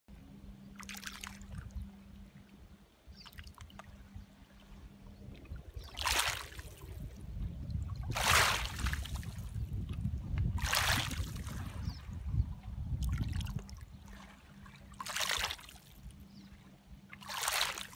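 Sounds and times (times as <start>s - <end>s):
waves lapping on pebbles: 0.8s - 1.4s, 5.8s - 7.0s, 8.1s - 9.5s, 10.5s - 11.7s, 14.1s - 16.0s, 17.1s - 17.9s.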